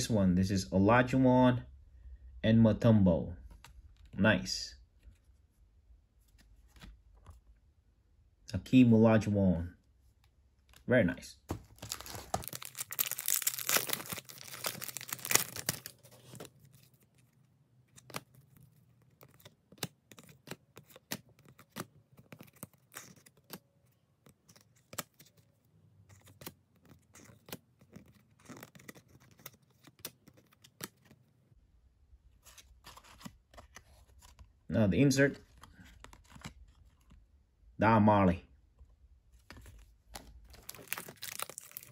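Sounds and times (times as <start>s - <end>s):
wrapper tearing and crinkling: 11.7s - 17.3s, 40.4s - 41.9s
cards clicking and sliding: 17.9s - 31.2s, 35.6s - 37.2s.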